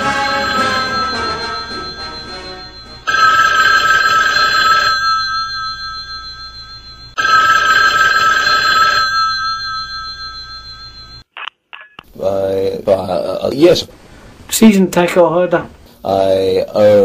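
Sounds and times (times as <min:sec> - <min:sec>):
telephone bell ringing: 0:00.0 - 0:11.3.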